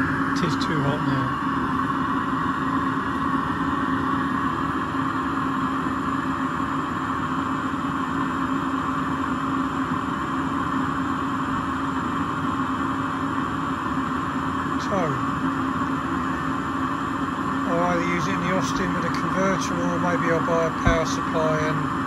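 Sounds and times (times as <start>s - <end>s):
air heater whirring hum: 0.0s - 22.0s.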